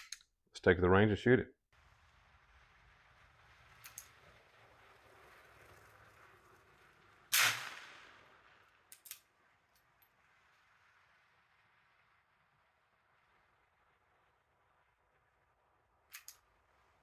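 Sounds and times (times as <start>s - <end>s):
metallic bolt clicks: 0.0s - 0.3s, 16.1s - 16.4s
pistol shot with echo: 7.3s - 8.0s.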